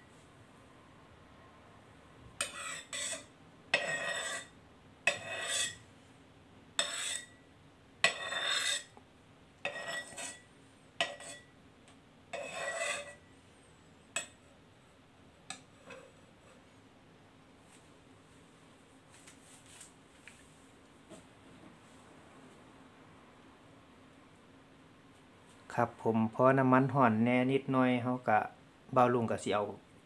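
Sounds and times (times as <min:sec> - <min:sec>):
metal spatula scraping wok: 0:02.4 - 0:05.8, 0:06.8 - 0:07.4, 0:08.0 - 0:09.0, 0:09.6 - 0:11.5, 0:12.3 - 0:13.3, 0:15.5 - 0:16.6.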